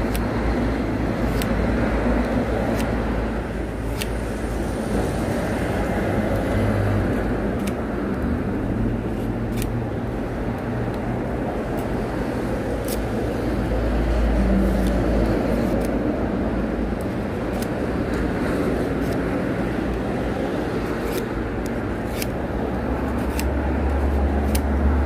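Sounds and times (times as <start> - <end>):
knife scraping wooden stick: 20.8 - 21.4, 22.0 - 22.4.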